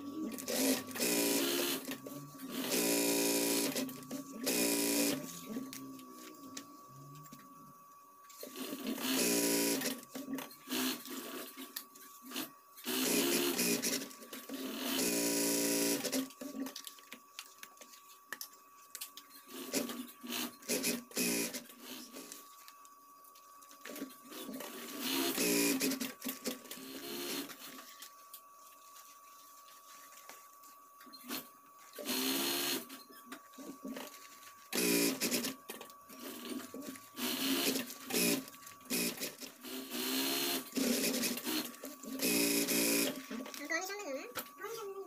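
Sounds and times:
faint high hum: 0.0 - 45.0
sewing machine stitching: 12.3 - 16.6.

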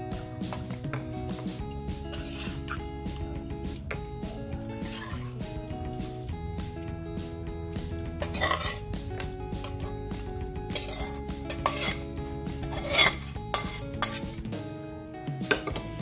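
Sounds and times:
background music: 0.0 - 16.0
metal spoon scraping a pan: 2.1 - 2.8, 4.7 - 5.3, 8.2 - 8.9, 10.6 - 14.4.

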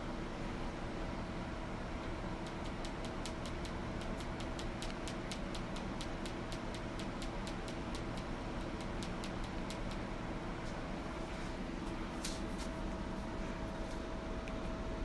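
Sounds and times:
room hum: 0.0 - 15.0
rapid light ticking: 2.0 - 10.1.

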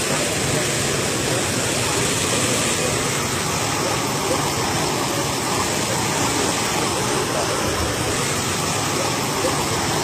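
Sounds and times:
water rushing and splashing: 0.0 - 10.0.

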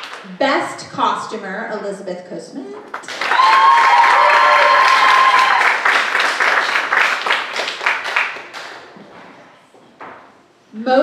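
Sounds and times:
audience applauding: 2.9 - 9.0
high-pitched cheer: 3.1 - 6.2.

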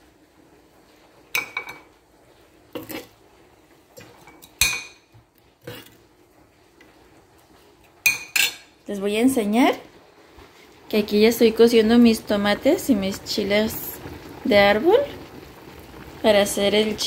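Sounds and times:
dishes and utensils clinking: 8.0 - 8.8.

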